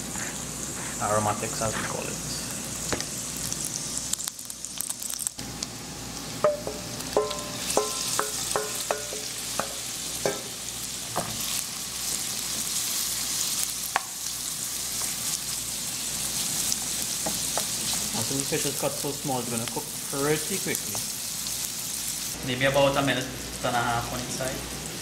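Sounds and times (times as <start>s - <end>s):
food sizzling in hot oil: 0.0s - 25.0s
wooden spoon stirring pan: 6.5s - 10.5s, 16.6s - 18.9s.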